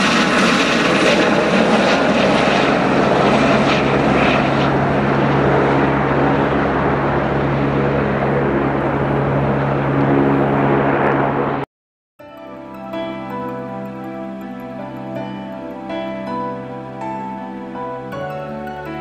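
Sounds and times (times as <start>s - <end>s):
helicopter rotor and engine: 0.0s - 11.7s.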